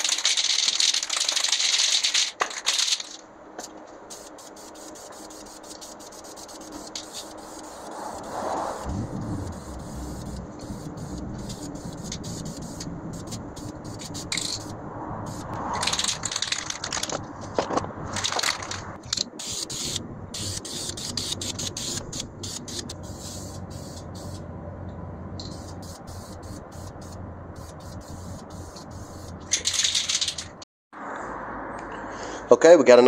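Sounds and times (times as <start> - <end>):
low hum: 3.2 - 32.4
aerosol can hissing: 4.1 - 14.7, 19.4 - 24.4.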